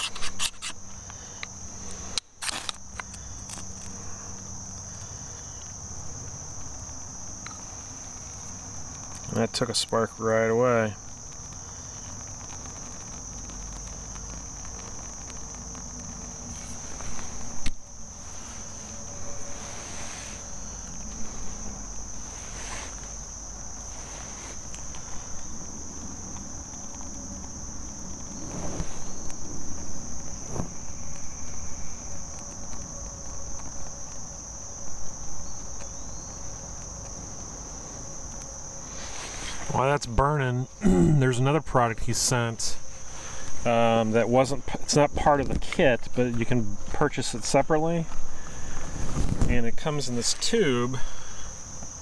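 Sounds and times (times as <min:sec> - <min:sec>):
insects trilling: 0:00.0 - 0:52.0
light rustles: 0:11.0 - 0:34.3, 0:35.0 - 0:39.8, 0:48.1 - 0:52.0.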